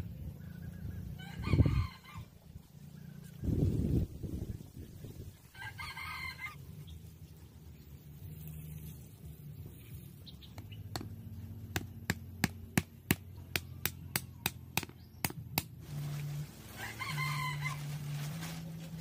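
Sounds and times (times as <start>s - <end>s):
rooster crowing: 1.2s - 2.4s, 5.5s - 6.6s, 16.7s - 18.0s.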